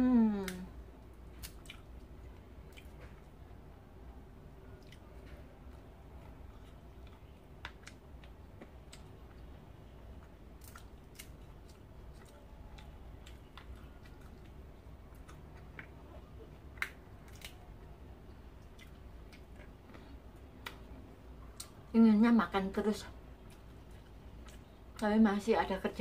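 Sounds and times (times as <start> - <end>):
quiet chewing: 0.4 - 3.6, 4.6 - 21.8, 23.2 - 25.1
peanut shells cracking: 10.2 - 17.8.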